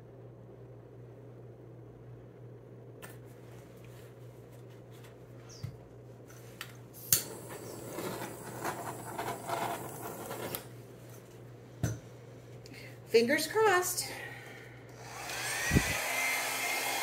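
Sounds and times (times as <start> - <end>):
torch ignition click: 7.0 - 7.6
torch flame hissing: 7.0 - 10.7.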